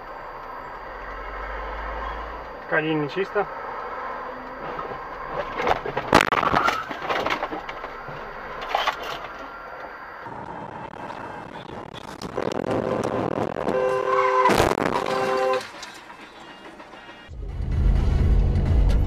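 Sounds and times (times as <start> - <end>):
knocks and rattling: 4.6 - 9.5, 14.5 - 17.4
car crash impact: 5.4 - 9.4
held multi-pitch tone: 8.1 - 16.7.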